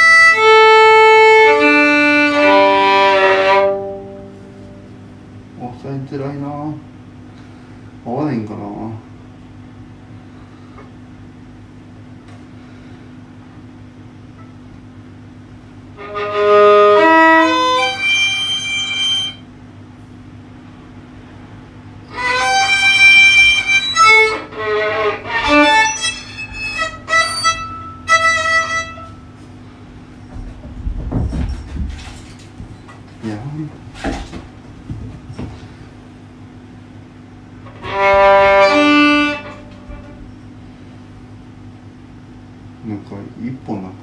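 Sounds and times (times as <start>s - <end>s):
violin bowed: 0.0s - 5.0s, 15.9s - 19.5s, 22.0s - 29.5s, 37.6s - 40.4s
low steady hum: 0.0s - 44.0s.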